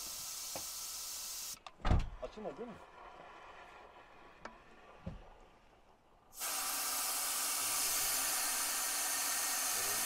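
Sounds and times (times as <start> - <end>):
air hissing out of tyre valve: 0.0 - 1.6, 6.3 - 10.0.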